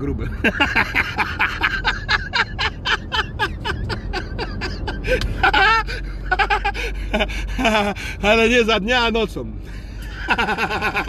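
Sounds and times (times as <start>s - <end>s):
man laughing hard: 0.3s - 8.0s, 10.0s - 11.0s.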